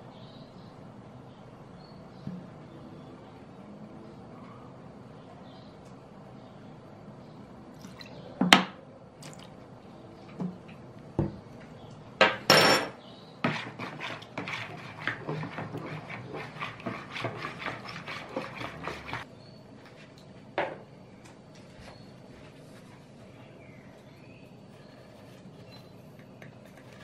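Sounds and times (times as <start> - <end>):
utensil stirring in plastic bowl: 13.4 - 19.3, 24.6 - 27.0.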